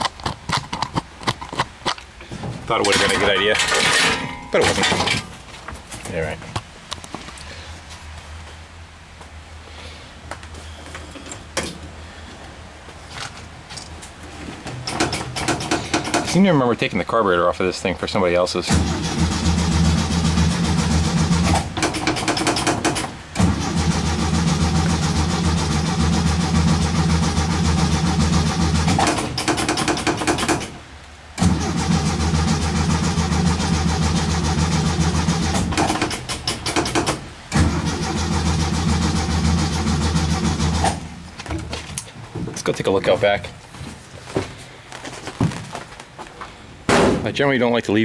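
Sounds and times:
engine cranking by starter: 2.7 - 5.3, 14.7 - 16.6, 18.6 - 30.8, 31.4 - 41.3.

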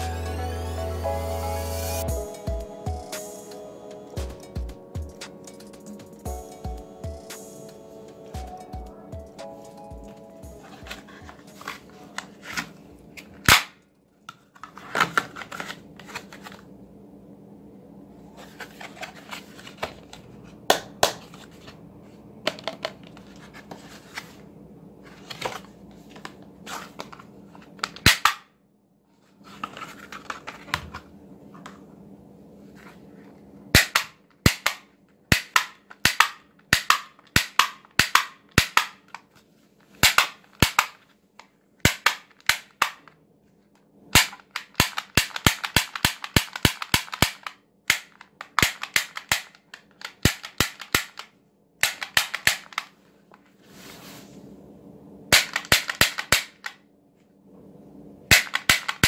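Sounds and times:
faint steady hum: 0.0 - 59.0
plastic toy rustling: 10.6 - 13.5, 14.2 - 16.7, 18.4 - 20.6, 22.4 - 28.0, 29.1 - 31.1
toy revolver clicking: 44.6 - 52.8.

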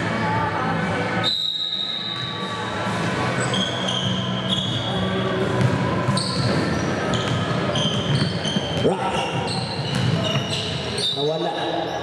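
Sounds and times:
shoe squeaks: 3.3 - 5.2, 6.1 - 12.0
basketball bouncing on court: 5.4 - 11.0.

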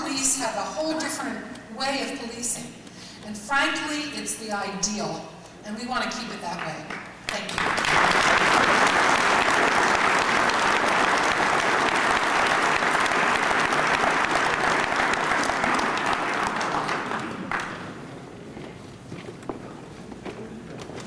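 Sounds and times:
large crowd applauding: 7.3 - 18.1.

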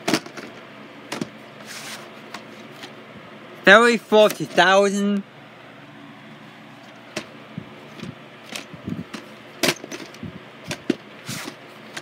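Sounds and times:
tape cases clicking and knocking: 0.0 - 1.4, 7.9 - 12.0.

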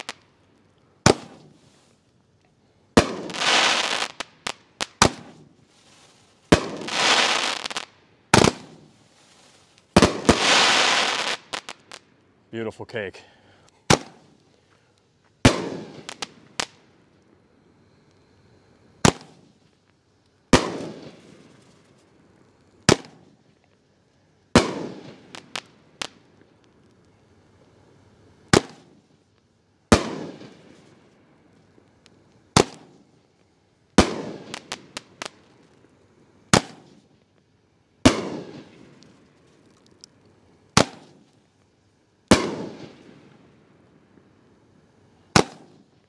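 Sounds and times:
small firework pops: 0.0 - 12.3, 13.6 - 17.3, 19.0 - 23.8, 24.5 - 27.8, 28.4 - 43.6, 45.3 - 46.0
firework bangs echoing: 1.0 - 1.6, 3.0 - 5.5, 6.5 - 8.9, 9.9 - 12.0, 13.9 - 14.4, 15.4 - 16.8, 19.0 - 19.5, 20.5 - 21.5, 22.9 - 23.4, 24.6 - 26.2, 28.5 - 29.0, 29.9 - 30.8, 32.5 - 33.0, 34.0 - 35.4, 36.5 - 37.0, 38.0 - 39.0, 40.8 - 41.4, 42.3 - 43.3, 45.3 - 45.9.

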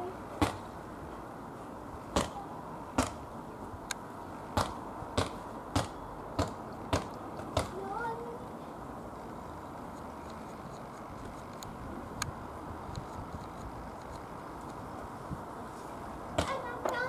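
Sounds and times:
ball bouncing on hard ground: 0.4 - 0.7, 3.0 - 3.2, 4.6 - 7.8, 16.4 - 17.0.

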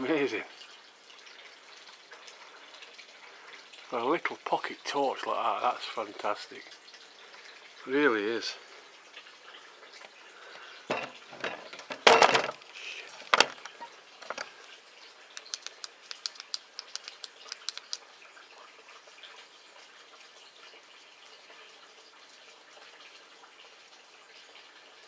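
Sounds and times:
light quick ticks: 15.4 - 18.0.

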